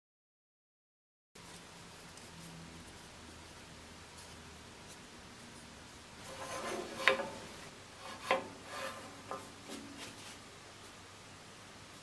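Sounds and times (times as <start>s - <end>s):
wooden block rubbing and scraping: 4.2s - 10.4s.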